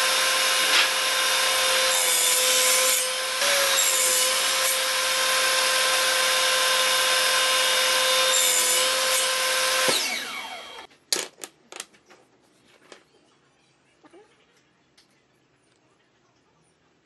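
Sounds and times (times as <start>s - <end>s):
table saw whining: 0.0s - 10.9s.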